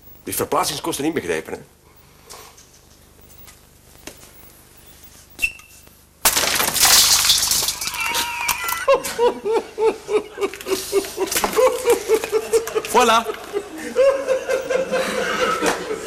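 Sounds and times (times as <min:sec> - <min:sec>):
man laughing: 0:08.0 - 0:16.0.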